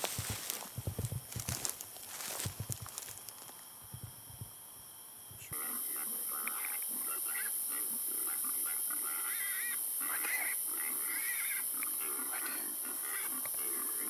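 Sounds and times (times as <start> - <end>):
steady high hiss: 0.0 - 14.0
hogs grunting and squealing: 5.5 - 14.0.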